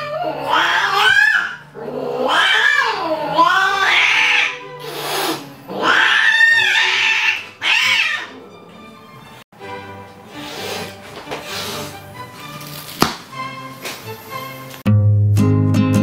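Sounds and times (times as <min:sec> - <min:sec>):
cat yowling: 0:00.0 - 0:08.6.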